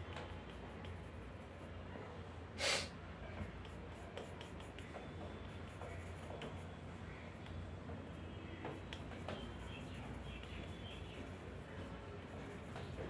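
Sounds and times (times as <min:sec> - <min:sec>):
pencil scratching on paper: 0:00.0 - 0:01.8, 0:03.4 - 0:07.0, 0:08.6 - 0:13.0
loud hiss: 0:02.6 - 0:02.9.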